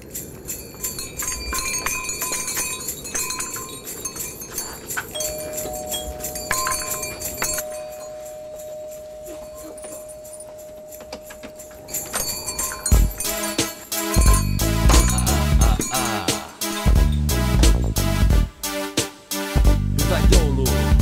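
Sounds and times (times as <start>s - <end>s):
jingle bells shaken: 0.0s - 18.2s.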